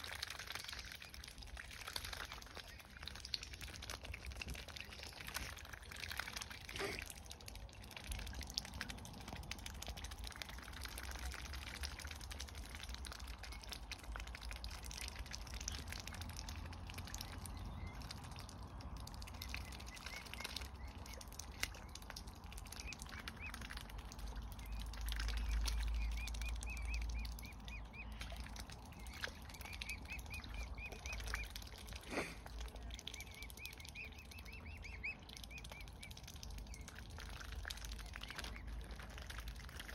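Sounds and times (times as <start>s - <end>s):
swan bills dabbling in water: 0.0s - 39.9s
cygnets peeping: 12.7s - 39.5s.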